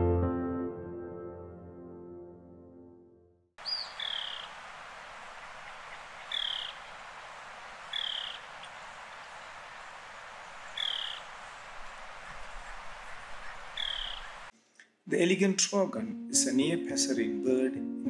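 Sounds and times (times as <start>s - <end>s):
bird hoarse croaking calls: 3.6s - 14.5s
steady background hiss: 3.6s - 14.5s.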